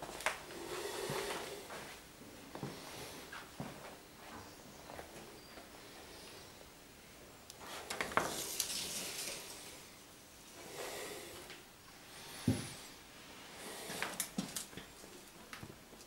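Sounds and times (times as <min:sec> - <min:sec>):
footsteps scuffing and rustling: 0:01.1 - 0:05.6.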